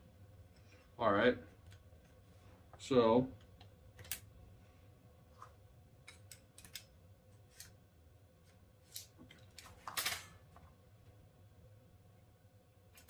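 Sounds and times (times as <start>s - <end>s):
rifle parts clicking: 6.1s - 6.9s.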